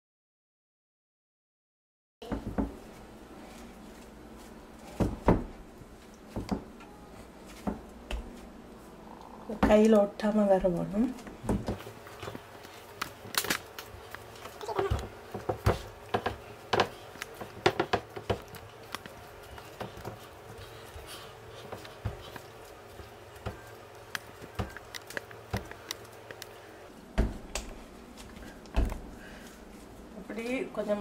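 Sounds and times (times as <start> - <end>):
hands kneading dough on wood: 9.6 - 30.1.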